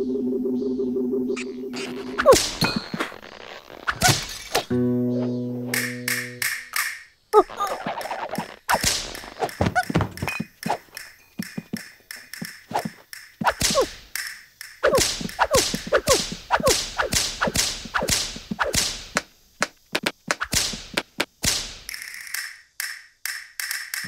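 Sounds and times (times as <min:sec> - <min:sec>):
cartoon whip cracks and slaps: 0:03.9 - 0:04.7, 0:07.7 - 0:09.6, 0:12.7 - 0:14.0, 0:14.8 - 0:22.0.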